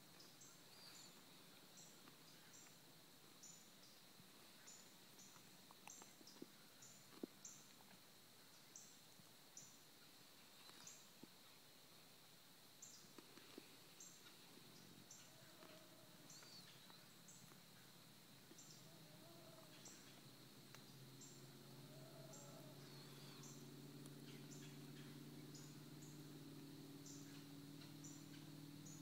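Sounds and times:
faint steady high hum: 0:00.0 - 0:29.0.

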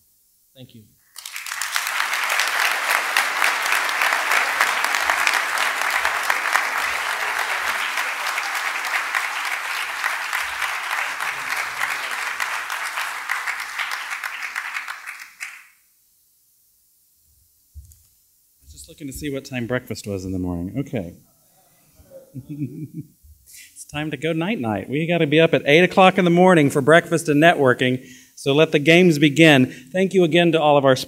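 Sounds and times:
audience applauding: 0:01.1 - 0:15.8.

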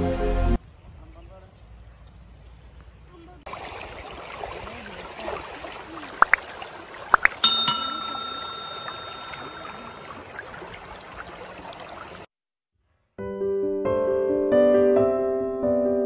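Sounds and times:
river water over stones: 0:03.4 - 0:12.3
bright bell ding: 0:07.4 - 0:10.2.

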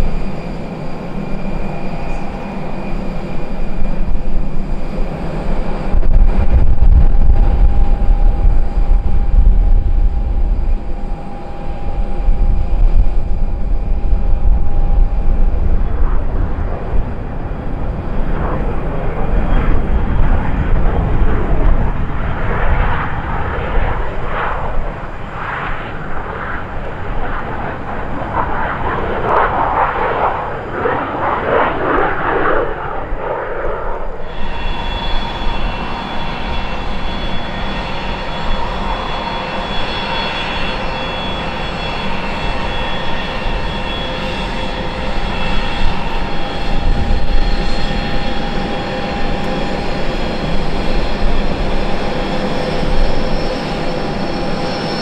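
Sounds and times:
jet engine noise: 0:00.0 - 0:55.0
deep rumble: 0:04.1 - 0:24.2.

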